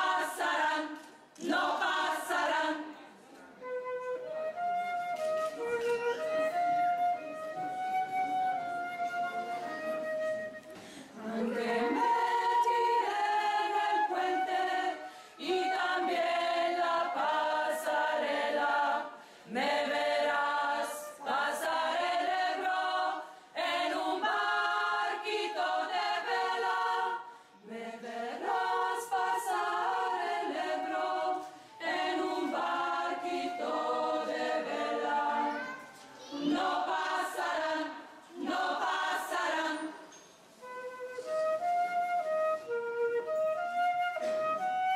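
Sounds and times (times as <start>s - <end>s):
choir singing a cappella: 0.0s - 3.1s, 11.0s - 40.4s.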